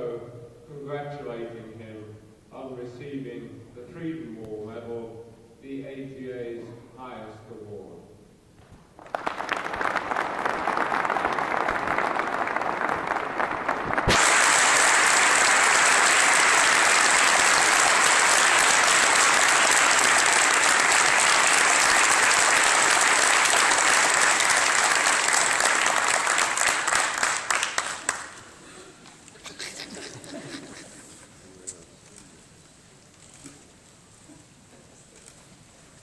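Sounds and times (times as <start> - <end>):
audience applauding: 9.0 - 28.6.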